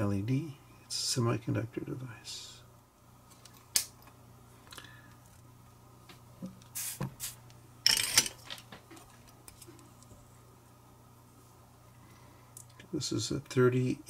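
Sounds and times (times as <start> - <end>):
tools handling clicks and rustle: 7.8 - 10.1.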